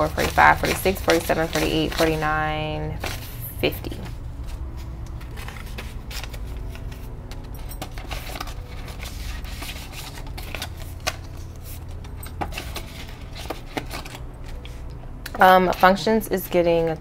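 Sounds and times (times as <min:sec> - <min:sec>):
binder pages clicking: 0:00.0 - 0:02.2, 0:05.0 - 0:15.9
paper banknotes rustling: 0:00.0 - 0:14.9
low steady hum: 0:00.0 - 0:17.0.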